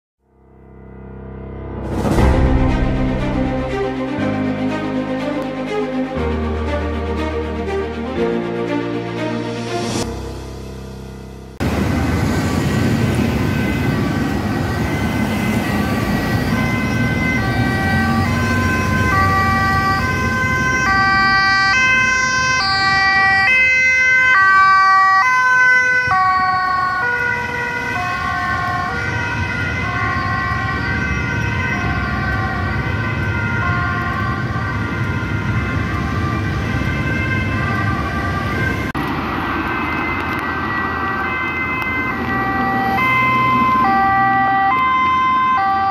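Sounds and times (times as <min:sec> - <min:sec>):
road traffic noise: 0:01.8 - 0:45.9
ambulance two-tone siren: 0:11.5 - 0:45.9.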